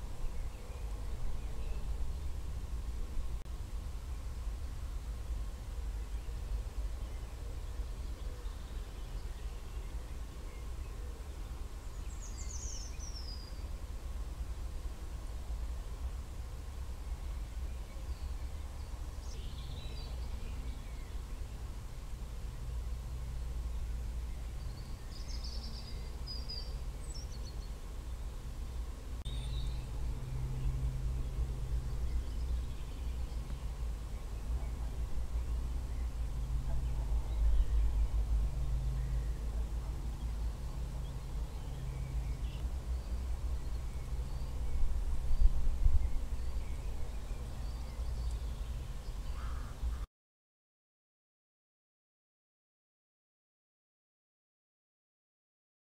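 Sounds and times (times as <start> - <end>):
bird song: 0.0 - 2.5, 5.7 - 13.9, 17.0 - 28.5, 29.2 - 50.1
steady low rumble: 0.0 - 7.1, 28.0 - 49.0.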